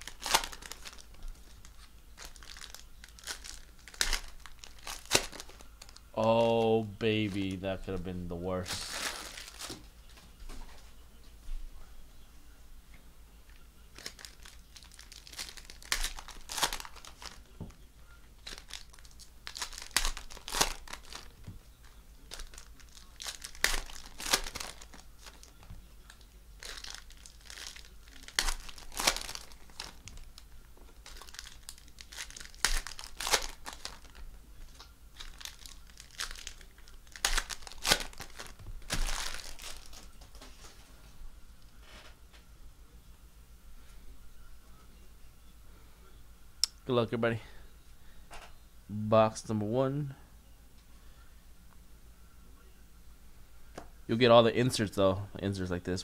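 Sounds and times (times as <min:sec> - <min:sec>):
card pack wrappers tearing and crinkling: 0:00.0 - 0:07.9, 0:08.5 - 0:09.9, 0:13.9 - 0:17.6, 0:18.4 - 0:21.5, 0:22.2 - 0:40.7.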